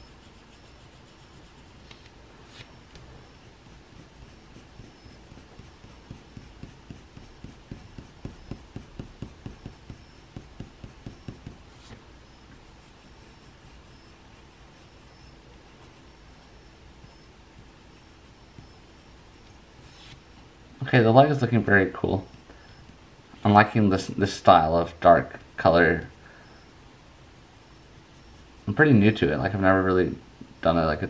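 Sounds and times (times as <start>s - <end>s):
pencil scratching on paper: 0.0s - 2.0s, 3.3s - 12.0s, 12.6s - 20.2s, 24.9s - 29.6s.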